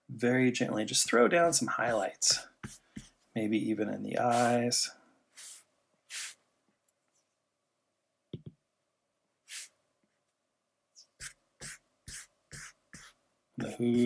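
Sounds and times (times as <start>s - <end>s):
stylus scratching on glass screen: 11.0s - 14.0s.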